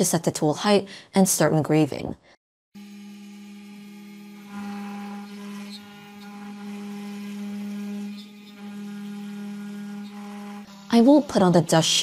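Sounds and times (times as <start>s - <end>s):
cnc spindle humming: 2.8s - 12.0s
engraving bit cutting wood: 2.8s - 12.0s.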